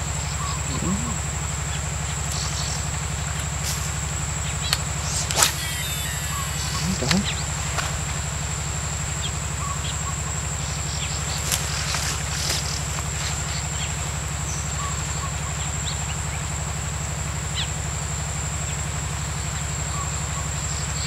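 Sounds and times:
bird chirps: 0:00.0 - 0:15.7
insect whine: 0:00.0 - 0:21.0
pulsing motor drone: 0:00.0 - 0:21.0.

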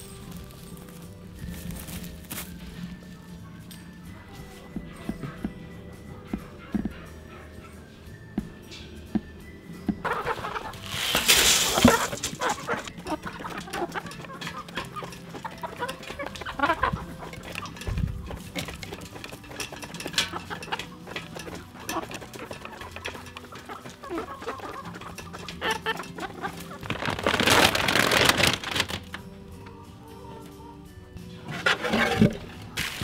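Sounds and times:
chickens scratching: 0:00.0 - 0:30.6, 0:31.3 - 0:33.0
chickens clucking: 0:04.2 - 0:33.0
loud rustling noise: 0:10.2 - 0:13.7, 0:24.9 - 0:29.2, 0:31.6 - 0:33.0.

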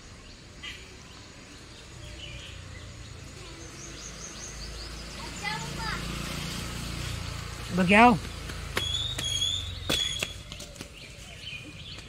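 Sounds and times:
small birds chirping: 0:00.0 - 0:12.0
high trilling bird call: 0:08.8 - 0:10.6.

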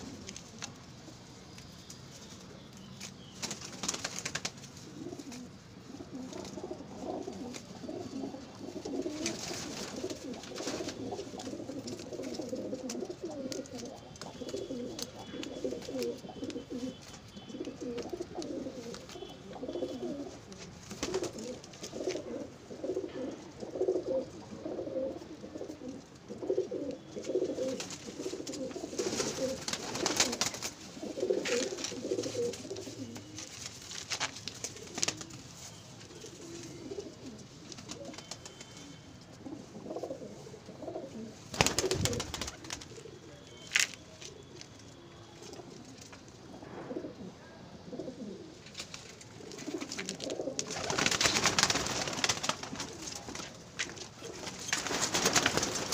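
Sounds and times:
pigeons cooing: 0:04.8 - 0:33.5, 0:36.1 - 0:43.4, 0:46.5 - 0:48.6, 0:49.4 - 0:53.2.

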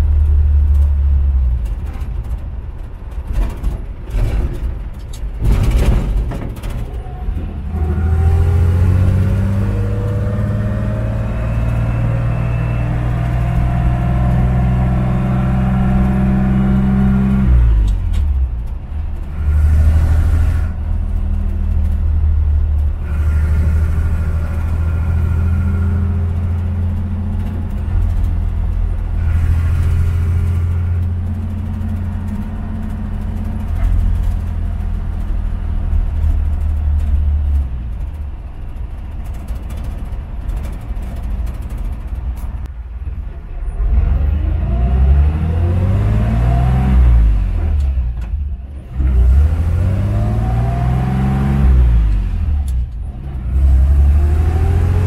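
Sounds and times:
truck engine running: 0:00.0 - 0:42.8.

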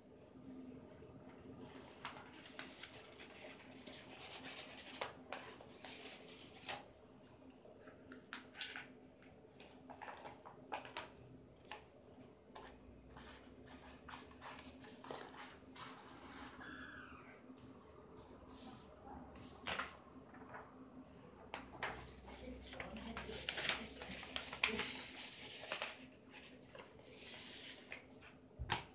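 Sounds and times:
paper crinkling: 0:01.7 - 0:06.9, 0:07.8 - 0:11.9, 0:12.5 - 0:16.9, 0:18.6 - 0:20.8, 0:21.5 - 0:28.9.

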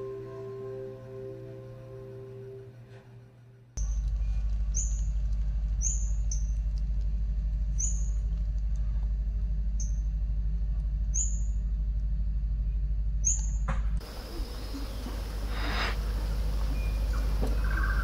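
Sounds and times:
steady low rumble: 0:03.8 - 0:18.0.

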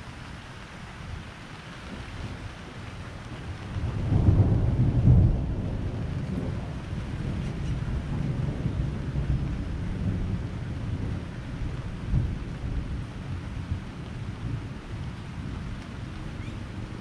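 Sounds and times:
steady rain: 0:00.0 - 0:17.0
thunder rumbling: 0:01.9 - 0:17.0.

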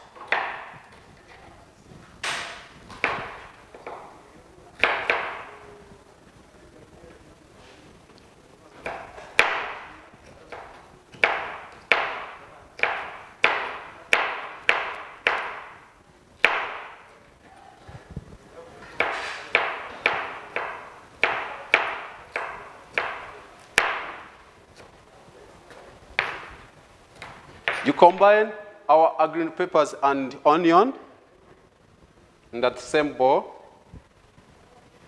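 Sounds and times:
knife chopping on plastic board: 0:02.9 - 0:04.0, 0:08.8 - 0:15.8, 0:16.4 - 0:17.0, 0:19.0 - 0:24.3.

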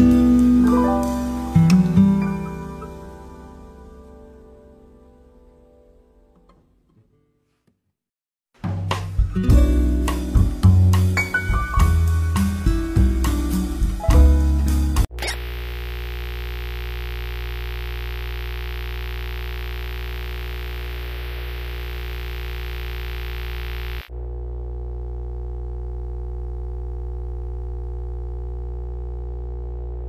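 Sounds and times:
static-like hiss: 0:15.1 - 0:24.1
electronic drone of low tones: 0:15.2 - 0:30.0.

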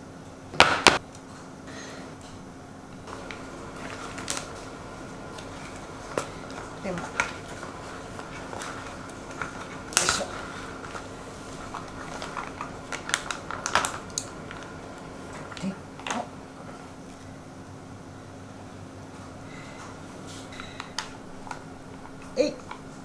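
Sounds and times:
faint hum: 0:00.0 - 0:23.0
plastic pouch crinkling: 0:03.1 - 0:15.6.

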